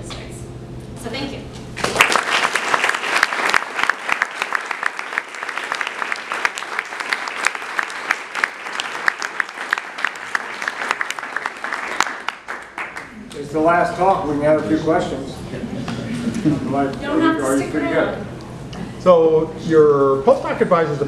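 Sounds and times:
audience applauding: 1.8 - 13.4.

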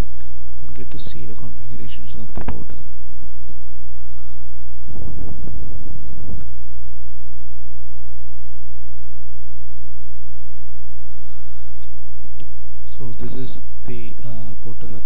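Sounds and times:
recording hiss: 0.0 - 7.0, 10.9 - 15.0
electrical mains hum: 0.0 - 15.0.

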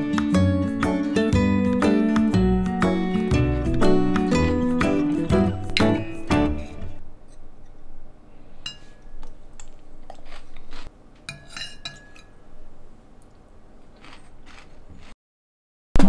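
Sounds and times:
cutlery and dishes clinking: 11.2 - 12.4.

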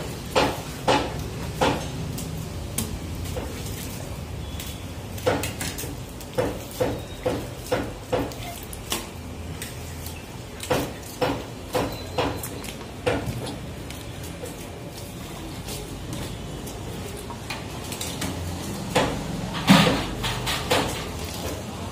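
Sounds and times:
sharp clanking knocks: 10.6 - 13.6, 18.4 - 21.2.

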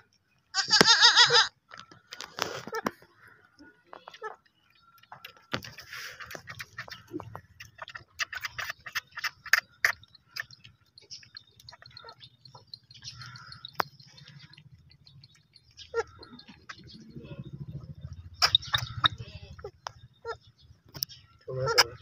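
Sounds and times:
wet sucking and smacking clicks: 4.0 - 14.6
goat kid suckling: 4.0 - 19.8.

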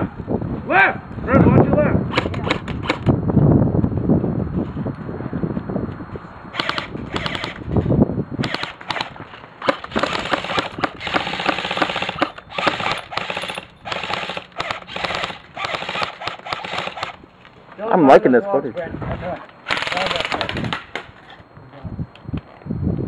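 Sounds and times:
airsoft guns firing full auto: 6.6 - 7.6, 8.4 - 17.2, 19.6 - 21.1.

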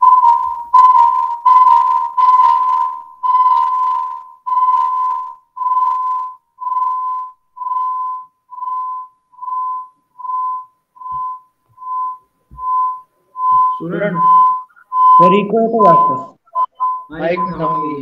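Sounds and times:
high whistling audio feedback: 0.0 - 18.0.

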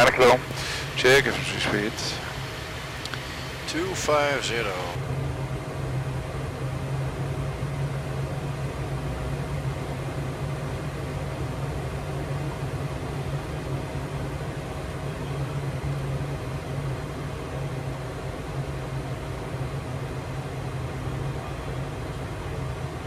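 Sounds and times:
air rushing over airframe: 0.0 - 5.0
faint steady whine: 0.0 - 23.0
low engine drone: 0.0 - 23.0.

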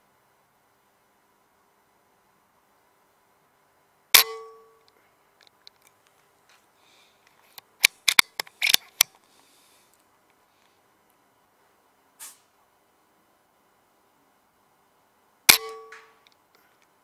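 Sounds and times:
rifle shot: 4.2 - 4.6, 15.5 - 16.2
rifle mechanism clicks: 7.6 - 9.1.

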